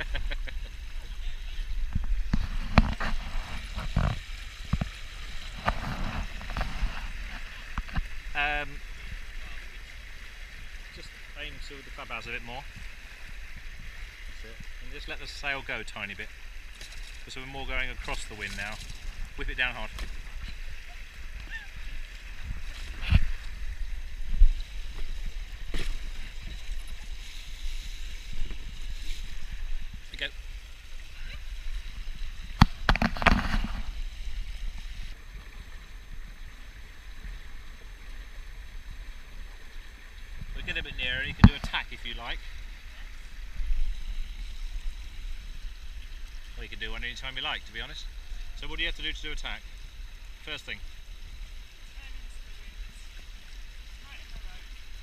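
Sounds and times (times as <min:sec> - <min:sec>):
wind rumble on microphone: 0:00.0 - 0:09.7, 0:16.6 - 0:46.6
water rushing against hulls: 0:00.0 - 0:55.0
sharp knocks and splashes: 0:01.9 - 0:08.3, 0:16.7 - 0:30.2, 0:31.8 - 0:34.0, 0:40.5 - 0:42.1.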